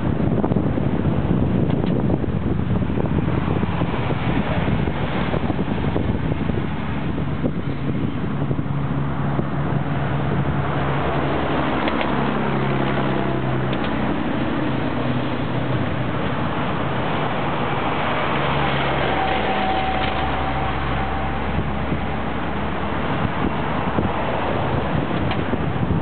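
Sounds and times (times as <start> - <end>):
locomotive engine drone: 0.0 - 26.0
faint thin whine: 18.4 - 22.6.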